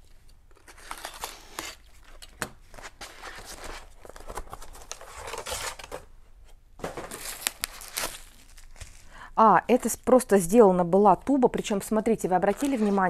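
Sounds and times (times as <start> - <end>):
paper rustling and crackling: 0.6 - 6.1, 6.8 - 9.1, 12.4 - 13.0.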